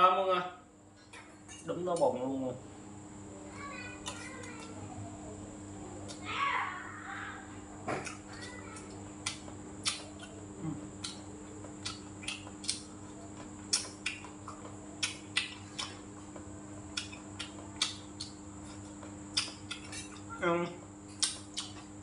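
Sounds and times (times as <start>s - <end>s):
faint hum: 0.0s - 22.0s
eating clicks and smacks: 8.0s - 20.3s, 21.1s - 22.0s.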